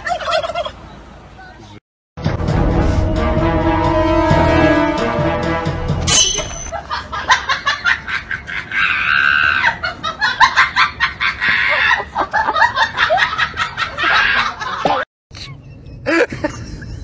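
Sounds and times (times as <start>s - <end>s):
people laughing: 6.7s - 15.0s, 16.0s - 17.0s.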